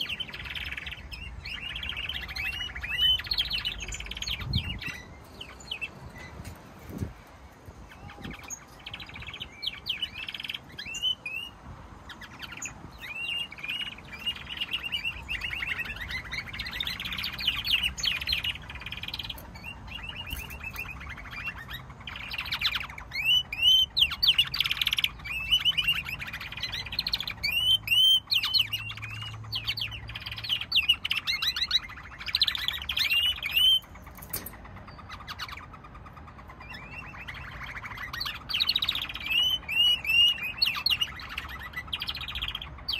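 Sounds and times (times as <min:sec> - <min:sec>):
canaries singing: 0:00.0 - 0:42.9.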